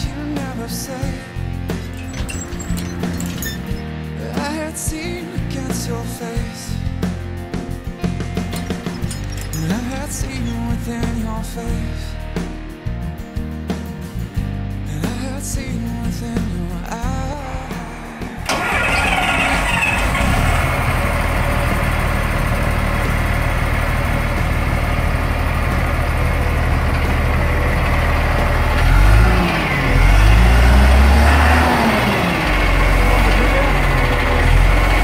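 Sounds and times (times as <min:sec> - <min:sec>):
diesel truck engine idling and revving: 0:17.4 - 0:35.0.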